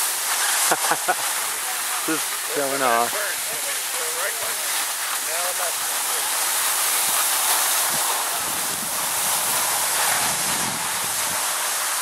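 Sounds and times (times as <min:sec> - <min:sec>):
skis sliding over packed snow: 0:00.0 - 0:12.0
wind on microphone: 0:07.8 - 0:11.7.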